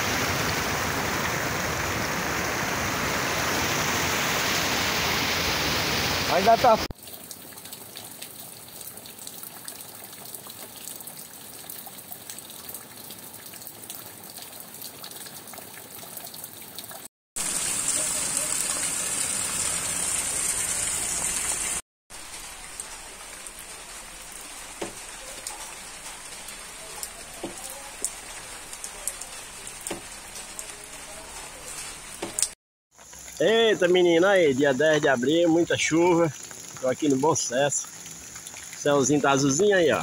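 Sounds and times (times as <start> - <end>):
heavy rain on a street: 0.0 - 6.9, 17.4 - 32.6
dripping from a roof edge: 6.9 - 40.0.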